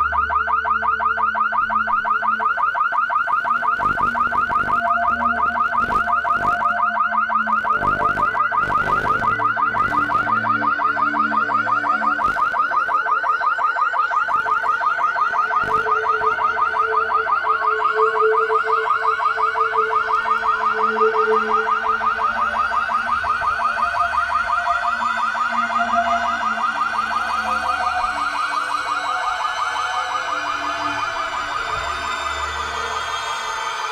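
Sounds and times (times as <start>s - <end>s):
pulsing electronic warble: 3.5s - 12.9s, 14.1s - 17.0s.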